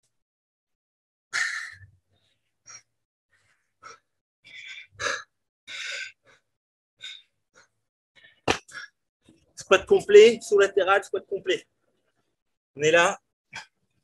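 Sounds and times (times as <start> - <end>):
man breathing hard: 3.4 - 7.3.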